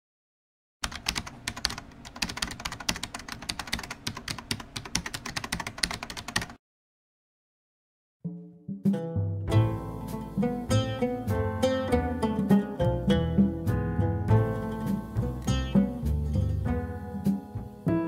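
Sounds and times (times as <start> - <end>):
keyboard typing clicks: 0.8 - 6.6
plucked-string tune: 8.3 - 18.0.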